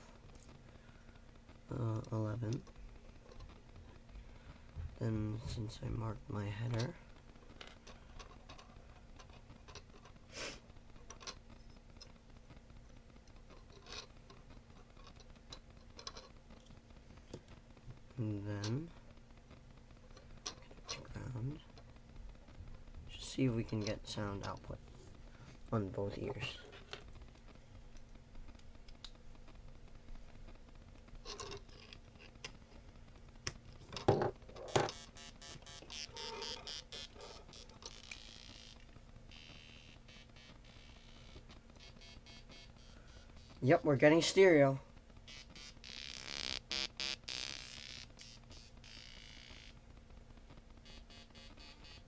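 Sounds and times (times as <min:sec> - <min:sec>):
faint low hum: 0:00.0 - 0:52.0
small clicks and scrapes of wires: 0:00.2 - 0:04.8, 0:06.6 - 0:43.6.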